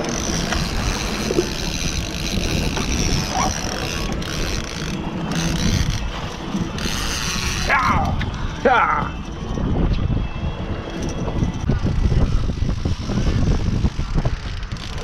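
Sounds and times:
outboard motor running: 0.0 - 9.7
wind buffeting microphone: 0.0 - 15.0.

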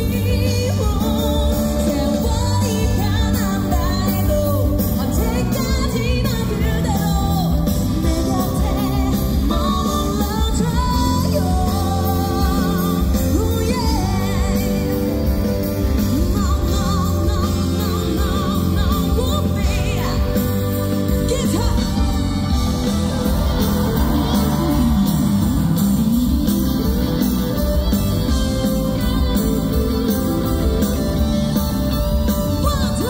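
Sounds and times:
woman singing into microphone: 0.0 - 25.2, 32.4 - 33.0
loud pop-rock backing music: 0.0 - 33.0.

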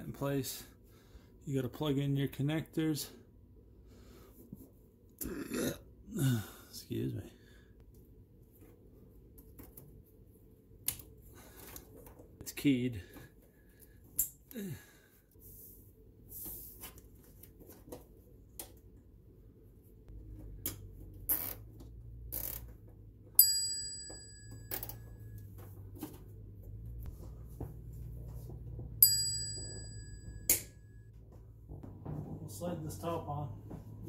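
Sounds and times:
bright ringing chime: 23.4 - 25.4, 29.0 - 31.1.

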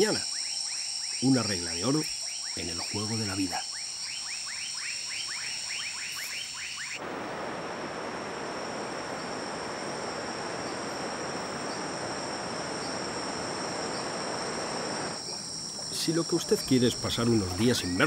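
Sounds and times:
frog chirping calls: 2.1 - 7.0.

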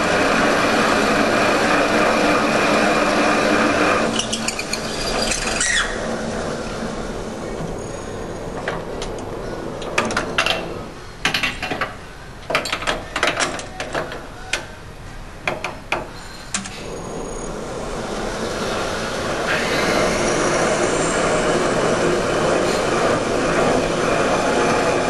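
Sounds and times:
machine motor running: 16.8 - 25.0.

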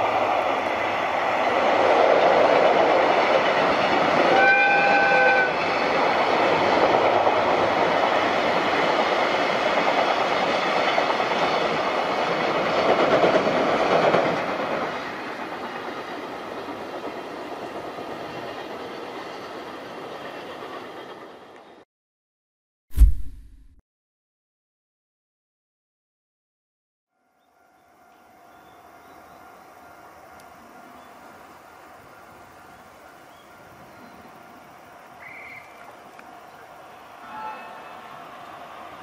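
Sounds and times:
locomotive horn: 4.2 - 5.7, 37.2 - 38.2.

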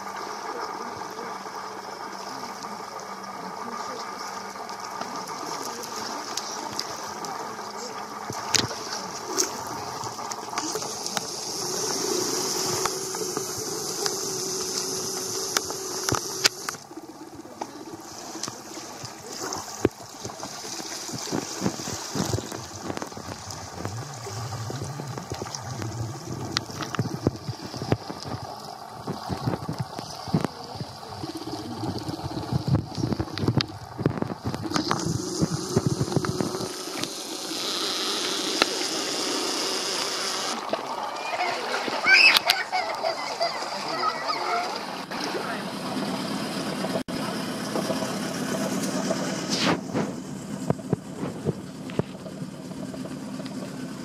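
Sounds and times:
small waves lapping on rocks: 0.0 - 46.5
scattered knocks and clicks: 49.9 - 52.4.

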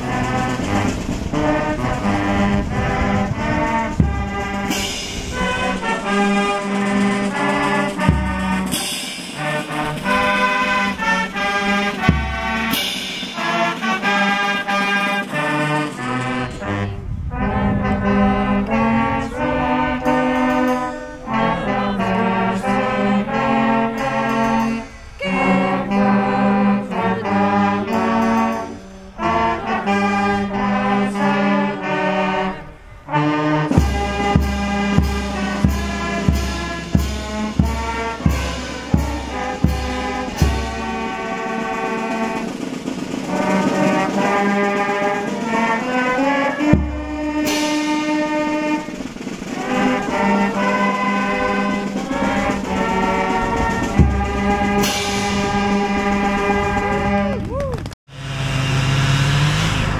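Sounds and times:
steady drum beat: 0.0 - 16.7, 33.7 - 57.4
brass band melody: 0.0 - 57.4, 58.1 - 59.9.

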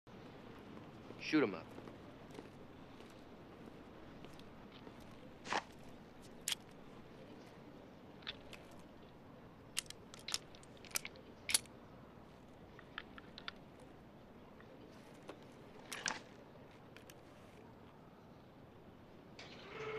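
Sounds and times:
cartridges clicking into revolver: 9.7 - 11.7.

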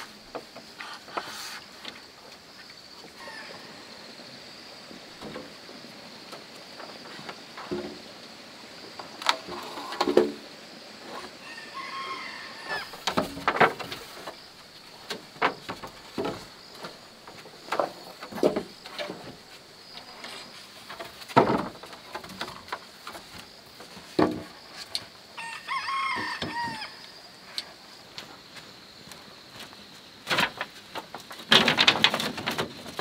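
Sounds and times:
bamboo poles clattering: 0.0 - 3.4, 4.9 - 8.2, 8.9 - 11.4, 12.6 - 25.3, 27.4 - 33.0
rooster crowing: 11.4 - 13.0, 25.4 - 27.3.

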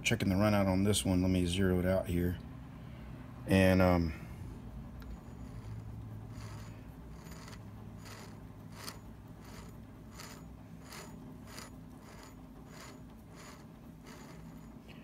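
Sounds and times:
steady low hum: 0.0 - 15.0
spindle scrape and click: 5.0 - 15.0.

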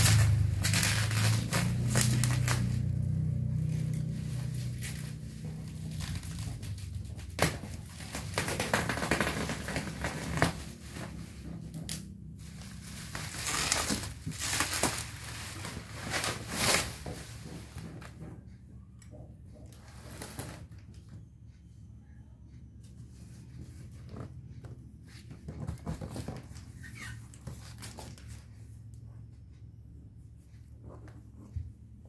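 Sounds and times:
bubble wrap crinkling and tearing: 0.0 - 17.3.

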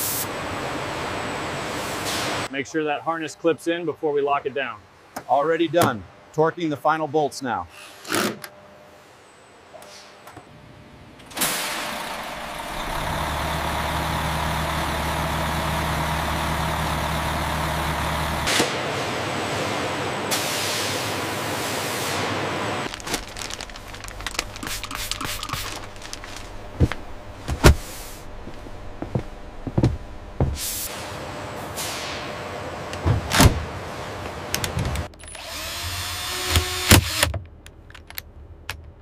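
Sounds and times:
low steady hum: 22.9 - 31.4.

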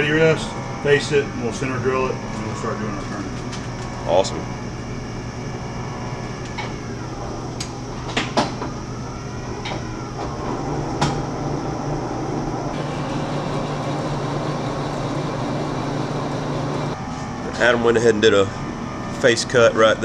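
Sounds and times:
lathe spindle humming: 0.0 - 17.0
lathe controls clanking: 12.6 - 17.0.

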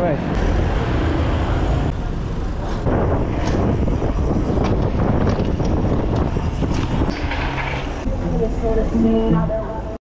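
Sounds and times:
wind buffeting microphone: 2.8 - 8.1.

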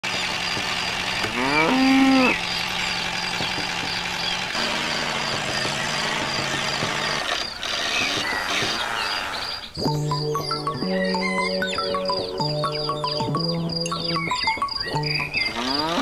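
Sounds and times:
steady engine-like hum: 0.0 - 16.0
cow mooing: 1.2 - 2.4, 15.4 - 16.0.

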